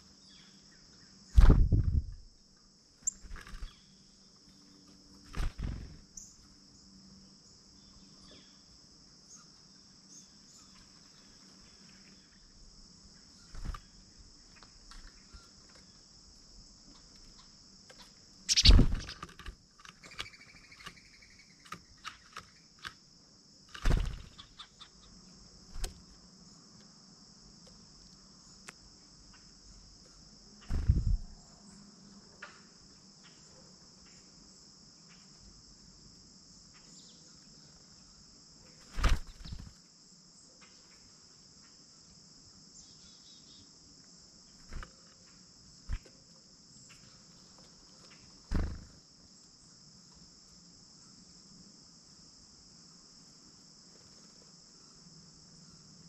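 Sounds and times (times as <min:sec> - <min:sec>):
crickets chirping: 0:00.0 - 0:56.0
birds pecking at seed: 0:17.9 - 0:23.0.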